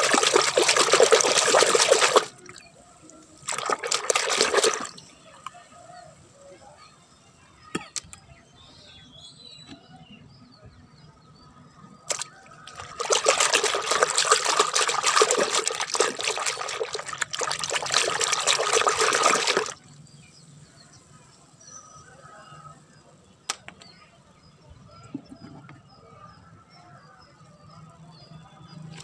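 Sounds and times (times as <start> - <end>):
water splashing in a bucket: 0.0 - 5.1, 12.1 - 19.9.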